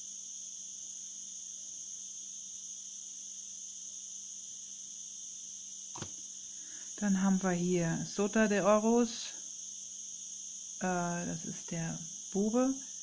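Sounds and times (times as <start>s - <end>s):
faint low hum: 6.0s - 9.4s.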